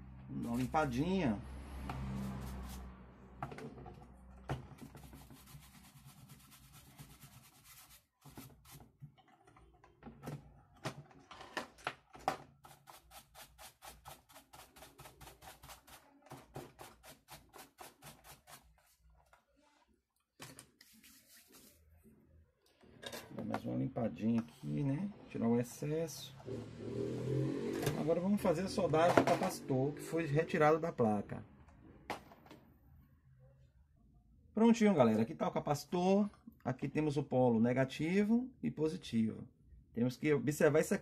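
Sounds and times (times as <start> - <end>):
small brush scrubbing circuit board: 5.0 - 8.8, 12.6 - 16.1.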